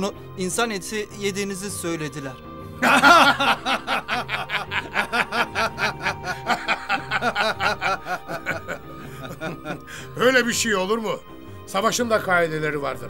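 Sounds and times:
men laughing: 2.8 - 10.2.

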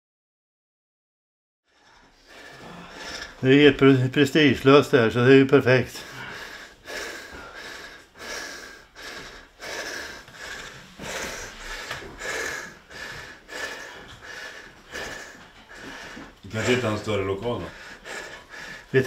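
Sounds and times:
person breathing hard: 1.8 - 3.4, 5.9 - 19.0.

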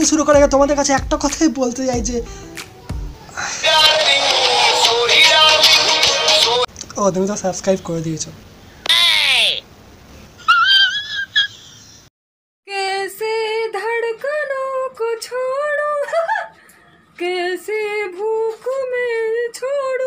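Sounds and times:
woman singing sing-song: 2.6 - 6.7, 12.7 - 20.0
high-pitched exclamation: 8.8 - 9.7.

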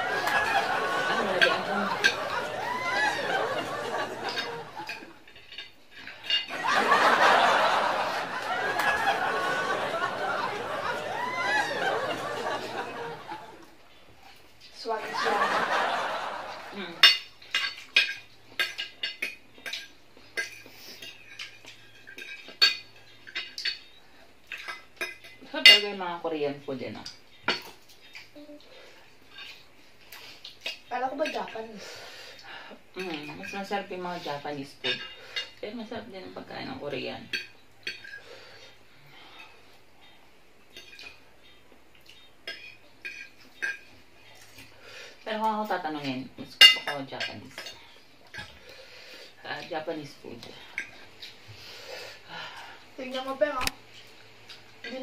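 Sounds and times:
forks clinking on ceramic plate: 0.0 - 13.4, 17.0 - 25.9, 34.8 - 35.6, 37.3 - 38.2, 42.4 - 44.6, 46.6 - 48.5.

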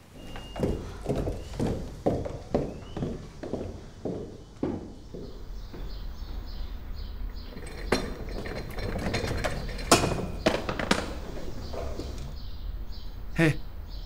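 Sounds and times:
sharp knocks and clinks: 7.4 - 11.2.

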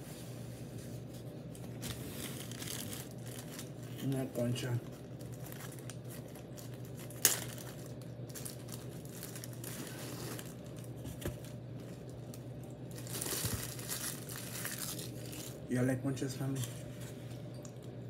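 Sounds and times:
plastic bag crinkling: 1.6 - 15.7.

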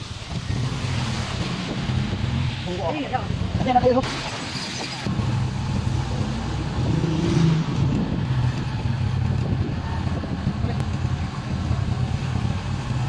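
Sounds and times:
road and wind noise: 0.0 - 13.0
motorcycle engine running: 5.1 - 13.0.

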